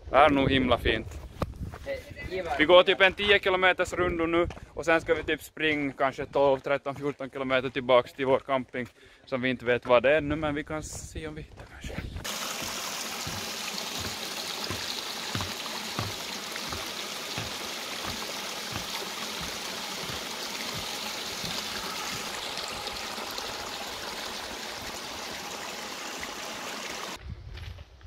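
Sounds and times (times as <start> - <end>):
stream trickling over rocks: 12.2 - 27.2.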